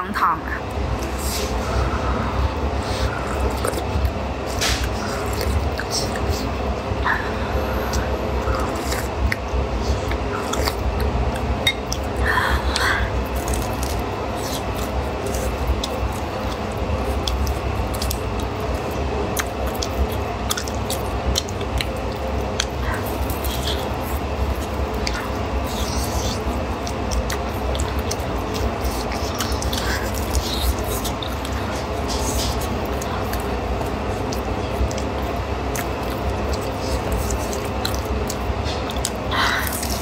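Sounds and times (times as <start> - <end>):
steady low rumble: 0.0 - 40.0
crisp bread bitten and chewed: 0.9 - 40.0
wet mouth smacks: 4.5 - 6.4
wet mouth clicks and smacks: 7.9 - 40.0.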